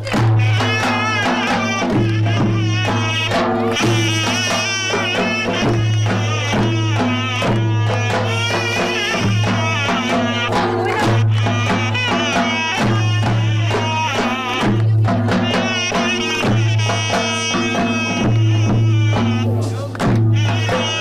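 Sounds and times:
folk percussion: 0.0s - 21.0s
sliding folk melody: 0.0s - 21.0s.

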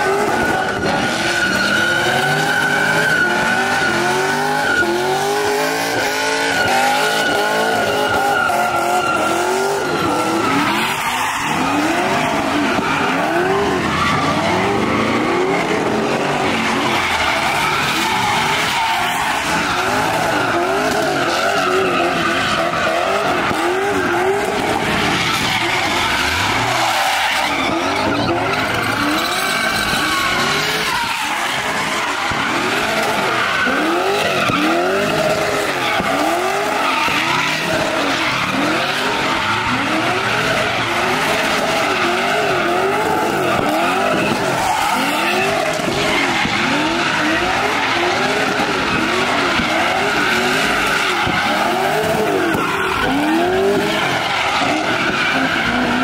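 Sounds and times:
car engines revving: 0.0s - 56.0s
tires squealing: 0.0s - 56.0s.

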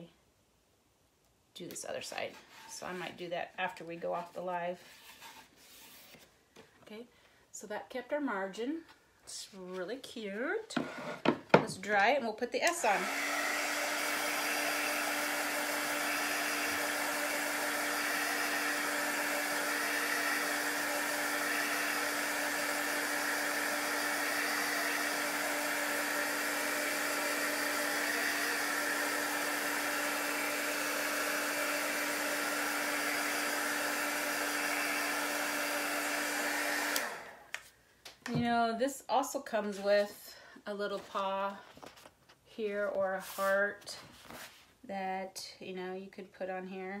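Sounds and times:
heat gun blowing: 12.6s - 37.7s.

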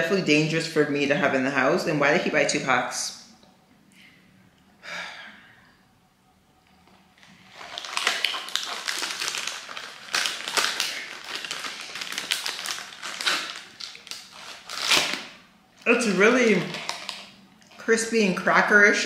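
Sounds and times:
foil wrapper crinkling: 7.2s - 17.4s.

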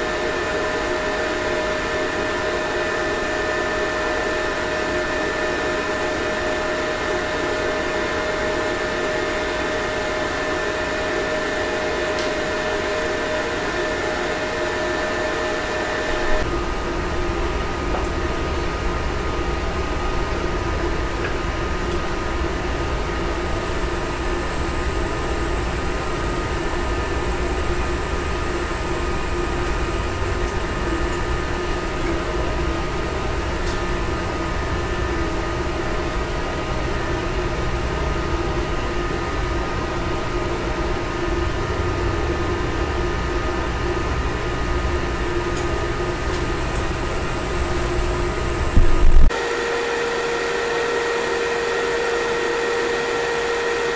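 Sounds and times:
inverter humming: 0.0s - 53.9s
night insects hissing: 20.4s - 37.8s, 44.3s - 49.3s.

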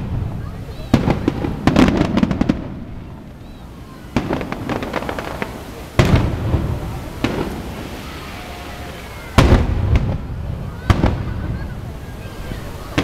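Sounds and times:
crackling pops: 0.0s - 13.0s
fireworks bursting: 0.0s - 13.0s
heavy boom with rumbling tail: 4.2s - 8.0s, 9.4s - 11.8s.

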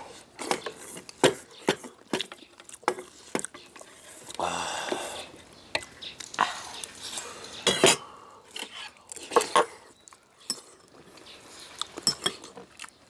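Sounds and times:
chewing and mouth sounds: 8.5s - 13.0s.

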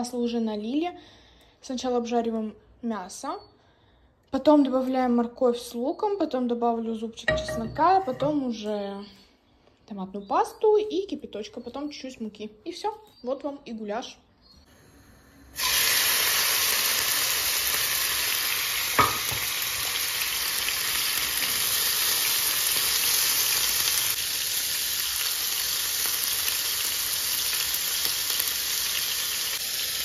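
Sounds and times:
meat sizzling in hot oil: 15.0s - 30.0s.

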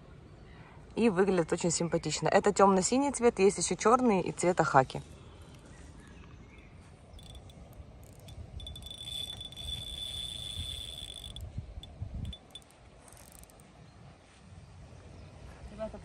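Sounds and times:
wind rumble on microphone: 6.6s - 16.0s
fishing reel drag buzzing: 7.2s - 13.6s.

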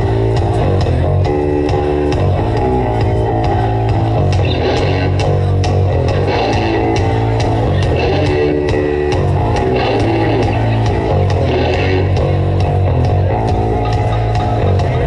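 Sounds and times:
bass guitar: 0.0s - 15.0s
drum kit beat: 0.0s - 15.0s
electric guitars: 0.0s - 15.0s.

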